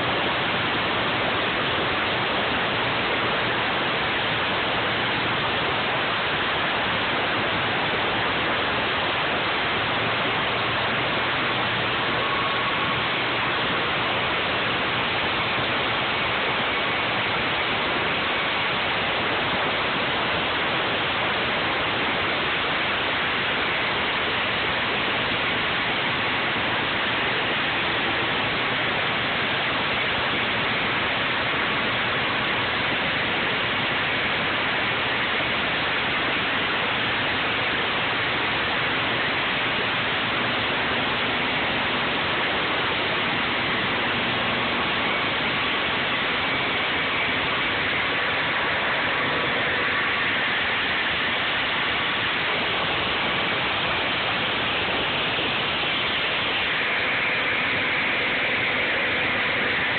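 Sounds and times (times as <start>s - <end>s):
concrete saw cutting concrete: 41.3s - 59.9s.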